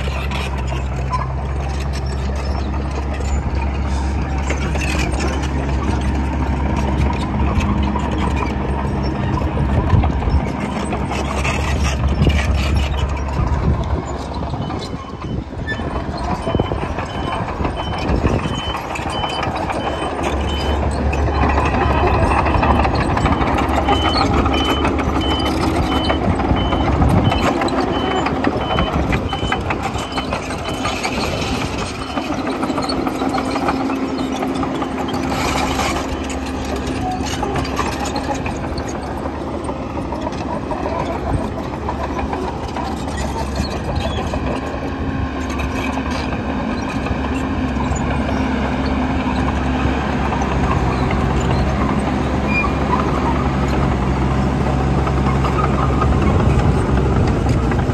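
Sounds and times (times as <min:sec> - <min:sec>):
bulldozer diesel engine running: 0:00.0 - 0:57.9
reversing alarm beeping: 0:14.6 - 0:32.8.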